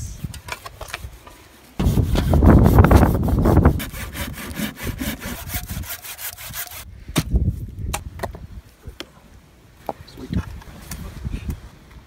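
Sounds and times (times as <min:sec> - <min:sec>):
saw cutting wooden branch: 0:01.8 - 0:06.8.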